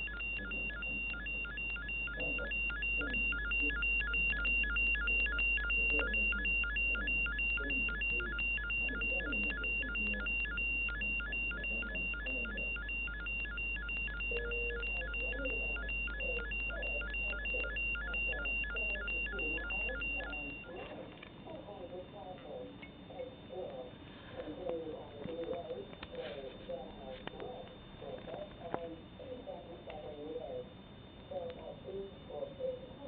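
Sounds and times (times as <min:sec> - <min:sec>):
alternating two-tone beep: 0:00.0 - 0:20.9
steady high tone: 0:00.0 - 0:21.0
low electrical hum: 0:00.0 - 0:33.0.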